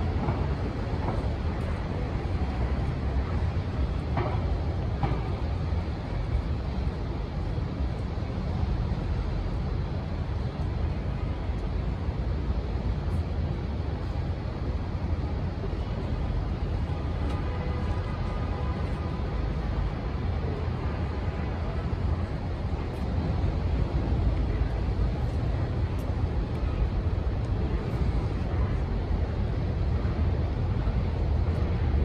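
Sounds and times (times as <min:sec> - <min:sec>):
city traffic rumble: 0:00.0 - 0:32.0.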